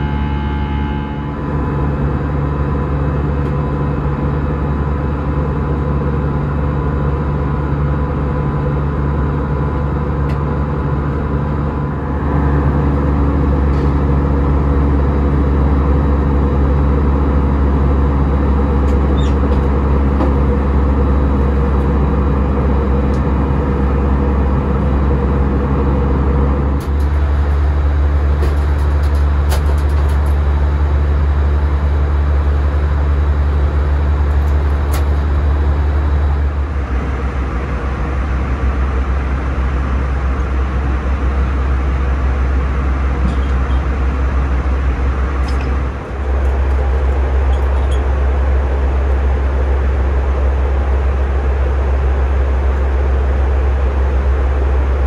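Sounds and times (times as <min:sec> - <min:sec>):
aircraft cabin engine drone: 0:00.0 - 0:55.0.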